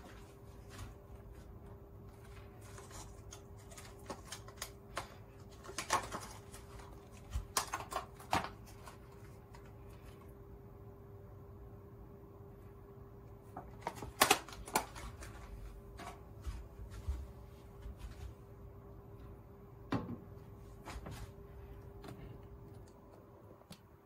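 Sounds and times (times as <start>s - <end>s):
faint steady hum: 0.0s - 24.0s
plastic pack clicks and knocks: 13.6s - 15.1s.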